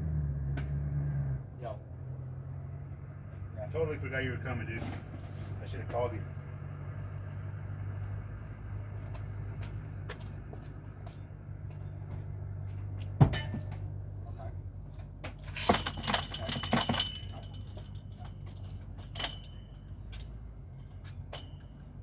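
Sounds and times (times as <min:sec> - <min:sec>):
metallic jingling and clinking: 0:08.8 - 0:14.6, 0:15.4 - 0:22.0.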